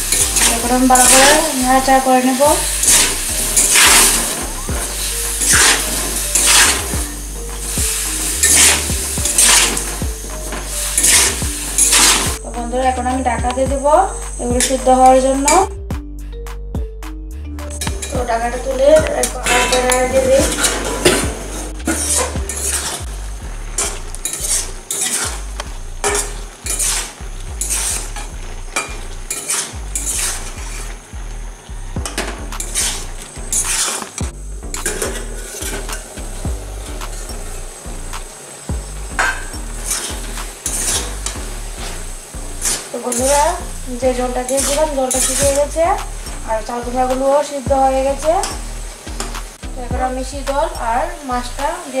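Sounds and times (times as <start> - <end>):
metal spatula scraping a pan: 0.0 - 12.4, 19.2 - 23.1, 23.7 - 31.0, 32.3 - 36.1, 39.2 - 45.6
vegetables sizzling: 0.0 - 15.8, 17.7 - 52.0.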